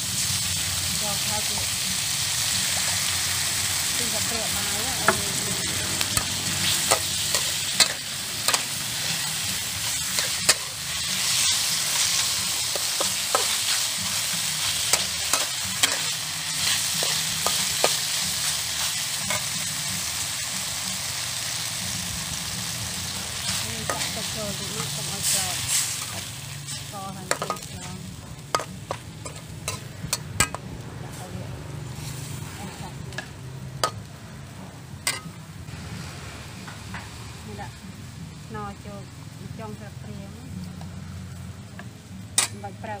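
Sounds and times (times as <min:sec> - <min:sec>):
meat sizzling in a wok: 0:00.0 - 0:43.0
metal spatula scraping and clinking: 0:06.2 - 0:18.0, 0:19.2 - 0:19.6, 0:28.5 - 0:30.6.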